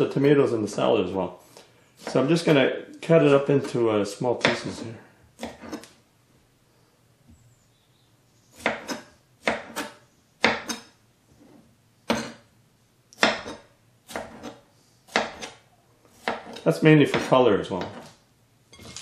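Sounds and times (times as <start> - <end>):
knife chopping on wooden board: 2.0 - 2.3, 4.4 - 4.7, 5.4 - 6.0, 8.6 - 11.0, 12.1 - 12.5, 13.2 - 18.2.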